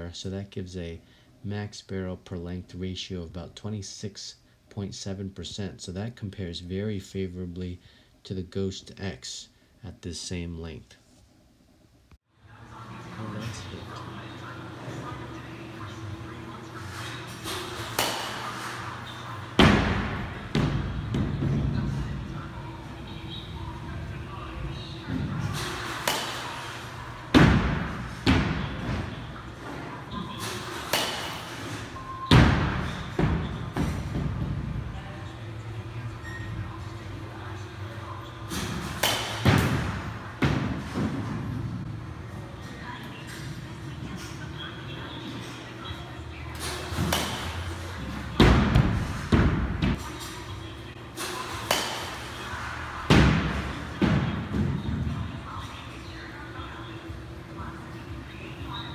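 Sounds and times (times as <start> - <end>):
bat hitting baseballs: 17.7 - 18.8, 25.7 - 28.7, 30.6 - 31.6, 38.8 - 40.8, 46.9 - 47.7, 51.2 - 52.4
bat hitting baseball: 17.9 - 18.4, 26.0 - 26.5, 30.9 - 31.4, 39.0 - 39.9, 51.6 - 52.2.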